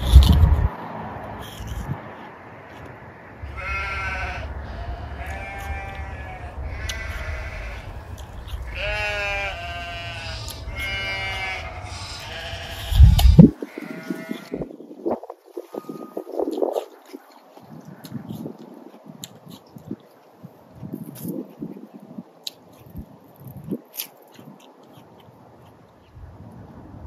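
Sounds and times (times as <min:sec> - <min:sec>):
low rumble: 0:00.0 - 0:02.2, 0:03.3 - 0:13.6
wavering bleat-like calls: 0:03.4 - 0:14.7.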